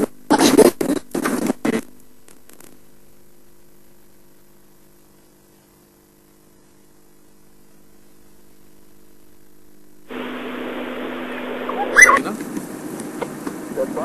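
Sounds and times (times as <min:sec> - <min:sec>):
sudden loud hiss: 0:10.0 - 0:14.0
vehicle engine running: 0:10.1 - 0:11.9.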